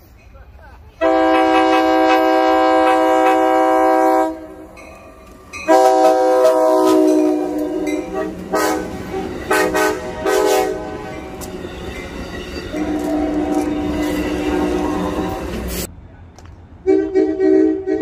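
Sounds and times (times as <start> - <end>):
passing train rumble: 0.0 - 18.0
locomotive air horn blasts: 1.0 - 4.8, 5.6 - 11.4, 12.7 - 15.9, 16.8 - 18.0.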